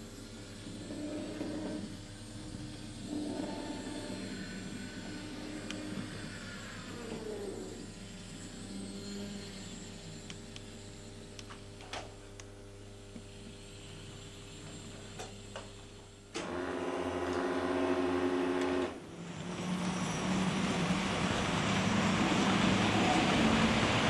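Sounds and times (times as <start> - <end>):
model train motor hum: 0.0 - 12.0
model train rolling and whining: 0.0 - 12.0, 16.4 - 24.0.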